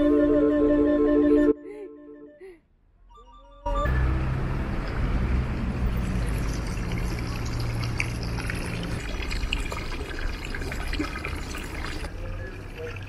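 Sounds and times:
water splashing into stone trough: 0:05.9 - 0:12.1.

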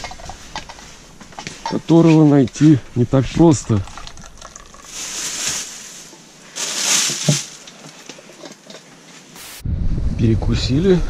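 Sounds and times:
plastic bags rustling: 0:04.0 - 0:08.8.

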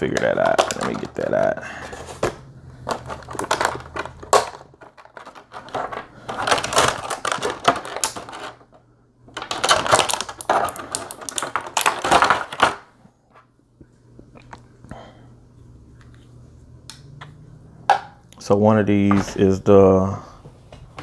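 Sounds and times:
plastic packaging crackling and clicking: 0:00.0 - 0:12.9.

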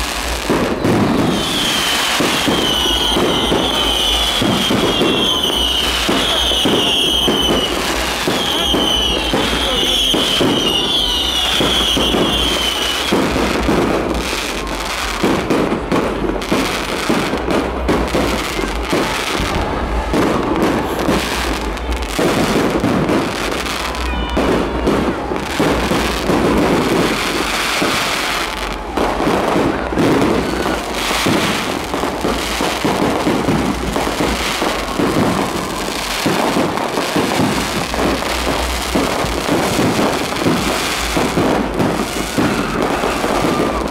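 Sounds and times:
fireworks bangs and crackling: 0:00.0 - 0:43.9
wavering high whistle: 0:00.9 - 0:13.2.

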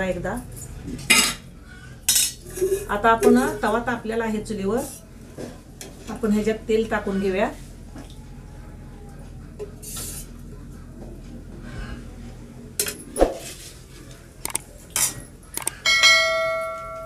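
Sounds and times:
bell-like chime: 0:15.9 - 0:17.0.

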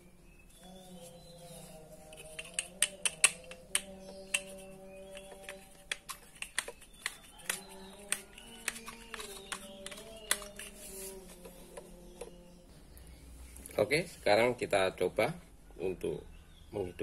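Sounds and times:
clicks of hard parts handled: 0:02.1 - 0:12.4.

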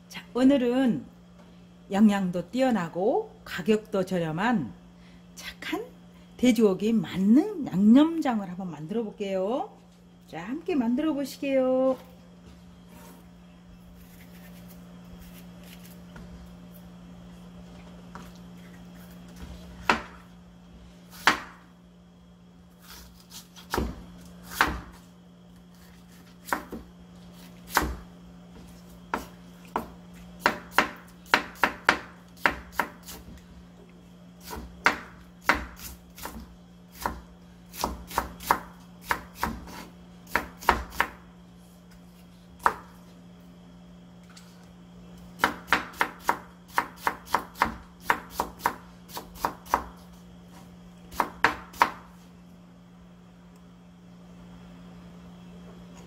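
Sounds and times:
knife chopping on wooden board: 0:19.7 - 0:20.2, 0:21.1 - 0:21.6, 0:22.8 - 0:25.0, 0:25.8 - 0:28.0, 0:28.6 - 0:33.3, 0:34.4 - 0:41.2, 0:42.6 - 0:43.0, 0:45.4 - 0:50.1, 0:51.1 - 0:52.1.

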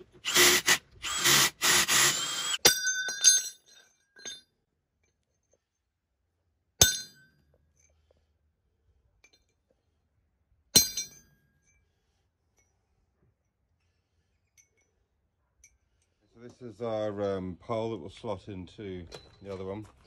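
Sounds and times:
steel striking steel: 0:02.6 - 0:04.4, 0:06.8 - 0:07.3, 0:10.8 - 0:11.3.

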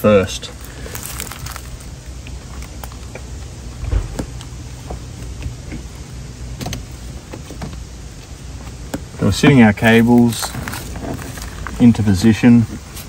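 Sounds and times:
steady low hum: 0:00.0 - 0:13.0
thump: 0:03.8 - 0:04.4.

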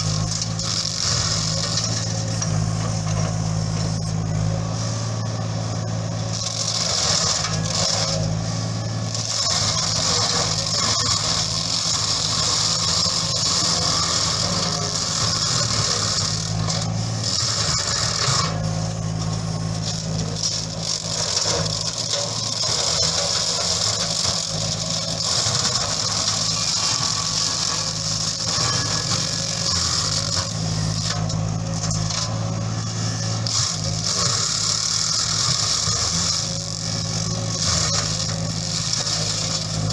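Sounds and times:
diesel engine running under load: 0:00.0 - 0:39.9
flail mulcher shredding brush: 0:00.0 - 0:39.9.

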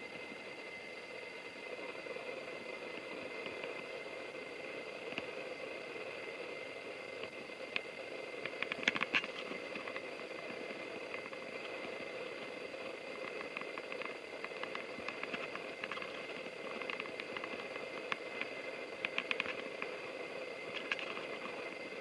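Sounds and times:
electric train hum: 0:00.0 - 0:22.0
light ticks: 0:07.2 - 0:10.0, 0:13.3 - 0:19.9.

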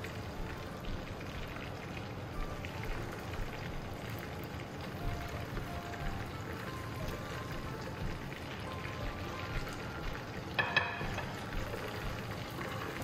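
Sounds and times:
fries sizzling in hot oil: 0:00.0 - 0:13.0
metal tongs clinking on pot: 0:10.6 - 0:11.5.

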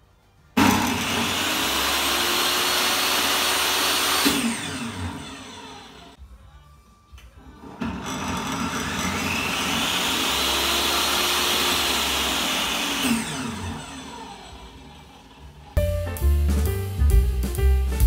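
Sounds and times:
table saw motor whining: 0:00.6 - 0:06.2, 0:07.8 - 0:15.8.

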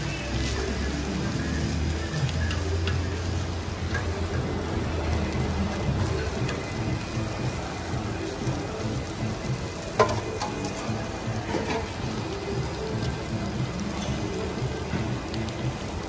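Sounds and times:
chicken sizzling on a griddle: 0:00.0 - 0:16.0
metal tongs scraping hot plate: 0:02.1 - 0:04.7, 0:10.0 - 0:12.0.

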